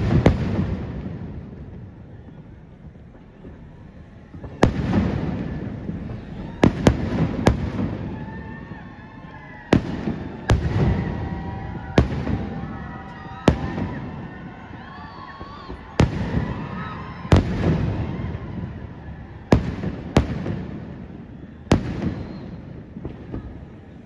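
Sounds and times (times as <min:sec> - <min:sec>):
fireworks bursting with echo: 0:00.0 - 0:24.0.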